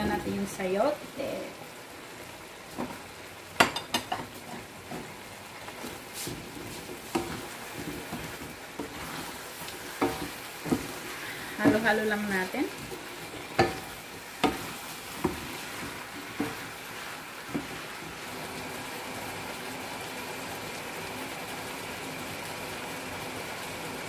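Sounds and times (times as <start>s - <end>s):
food sizzling in a pan: 0.0s - 24.0s
wooden spatula knocking wok: 3.6s - 18.2s.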